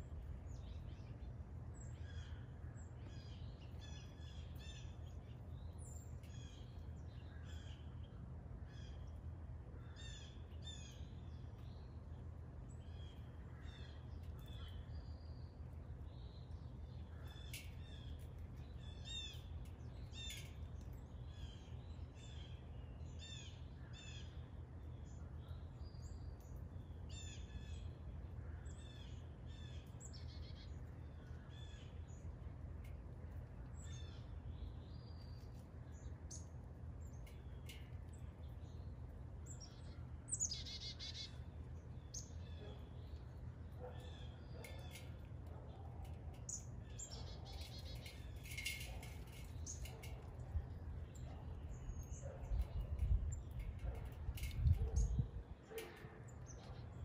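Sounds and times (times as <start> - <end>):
birds chirping and singing: 37.1 - 45.3, 46.0 - 57.0.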